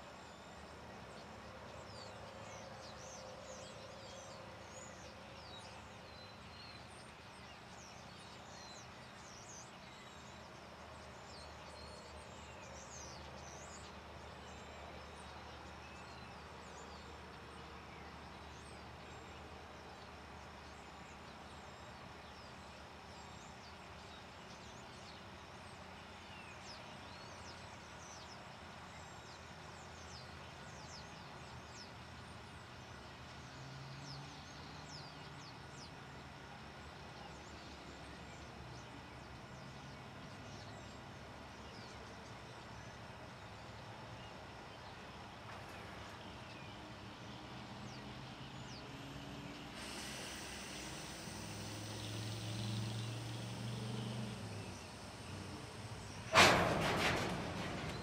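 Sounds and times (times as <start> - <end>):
birds chirping: 37.2 - 58.0.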